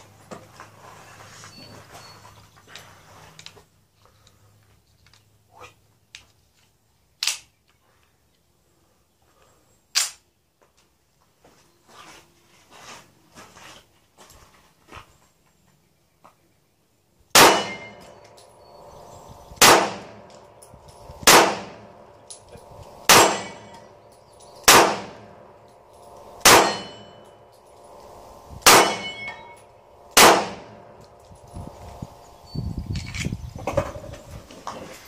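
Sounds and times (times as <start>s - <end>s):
pistol shots: 17.3s - 18.8s, 19.6s - 24.0s, 24.6s - 27.2s, 28.6s - 29.4s, 30.0s - 31.2s
metallic ringing: 17.4s - 33.2s.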